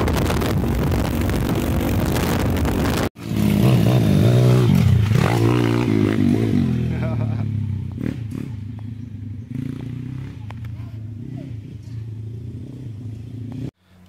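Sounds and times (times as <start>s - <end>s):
wind rush on microphone: 0.0s - 3.2s
pit bike engine revving: 0.1s - 13.8s.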